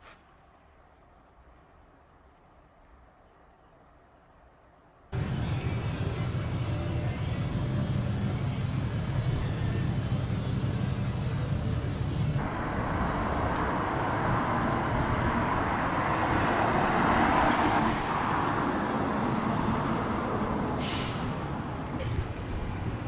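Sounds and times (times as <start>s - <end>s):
low engine rumble: 5.1s - 17.1s
vehicle passing with tyre noise: 5.1s - 23.0s
brief hiss: 20.8s - 21.3s.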